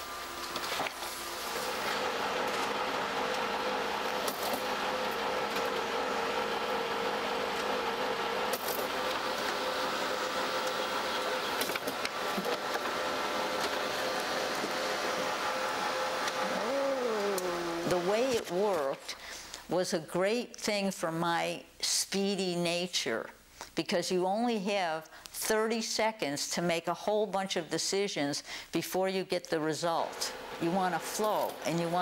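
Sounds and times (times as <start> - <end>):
copier mechanical whir: 0.0 - 19.1, 30.1 - 32.0
copier hum: 0.0 - 19.3, 30.0 - 32.0.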